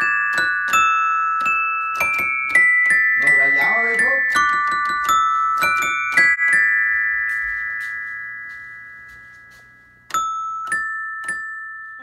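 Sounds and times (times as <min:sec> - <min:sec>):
glockenspiel notes ringing: 0:00.0 - 0:12.0.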